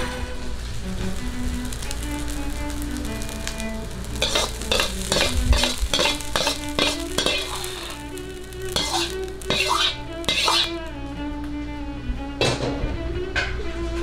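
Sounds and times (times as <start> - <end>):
rice sizzling in a wok: 0.0 - 10.9
metal spatula scraping a wok: 2.7 - 10.8.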